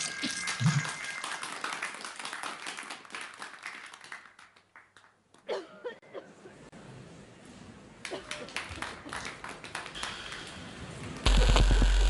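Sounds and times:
audience clapping: 0.3s - 5.5s, 8.0s - 11.9s.

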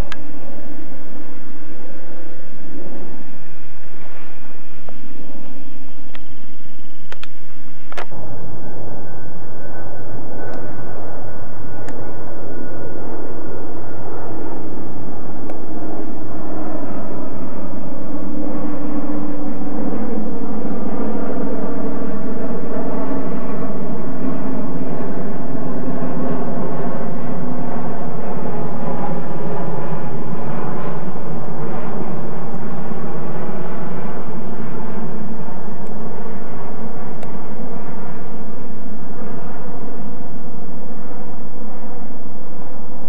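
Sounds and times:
aircraft engine drone: 0.0s - 43.0s
faint falling whine: 0.0s - 43.0s
sharp clicks: 7.1s - 8.2s.

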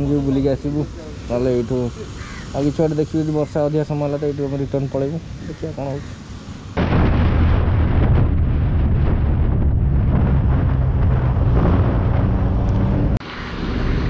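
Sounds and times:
motorcycle engine drone: 8.2s - 14.0s.

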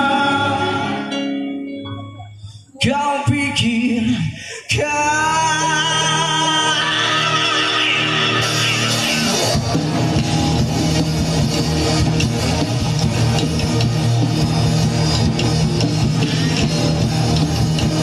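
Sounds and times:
man singing: 0.0s - 1.6s, 2.7s - 9.5s
live rock band playing: 0.0s - 4.0s, 5.1s - 18.0s.

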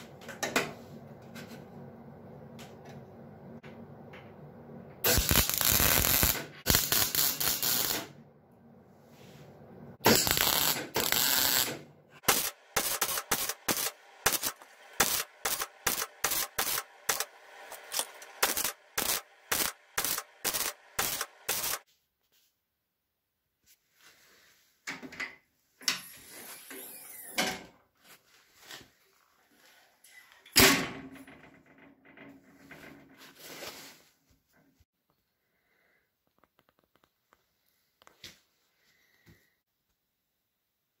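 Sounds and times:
welding crackle: 5.0s - 8.1s, 10.1s - 21.8s.

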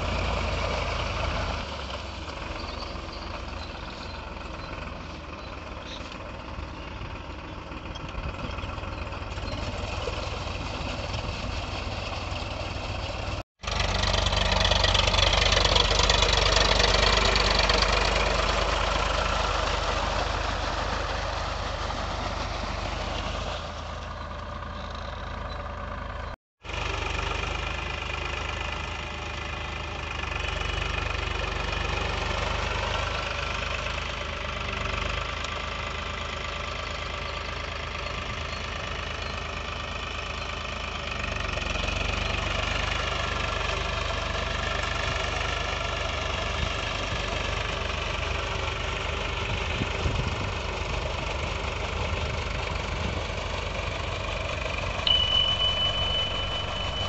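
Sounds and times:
tractor diesel engine running: 0.0s - 57.0s
wheels churning through water and mud: 0.0s - 57.0s.

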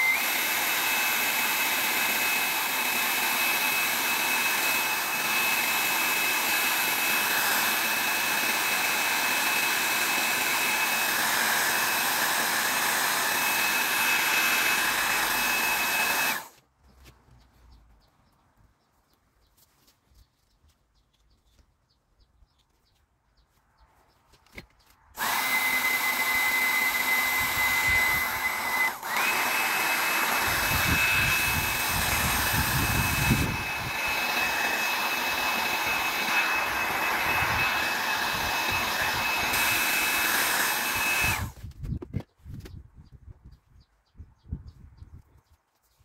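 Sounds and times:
power tool motor whining: 0.0s - 16.6s, 25.2s - 41.8s.

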